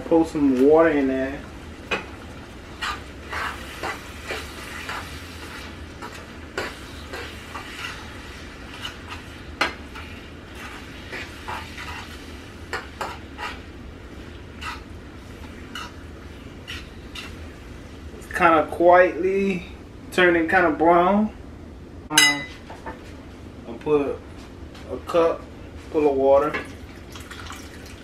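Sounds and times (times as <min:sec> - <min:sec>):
meat sizzling: 0:02.7 - 0:13.6
utensil scraping a pot: 0:02.7 - 0:13.7, 0:14.6 - 0:14.9, 0:15.5 - 0:16.0, 0:16.6 - 0:17.4.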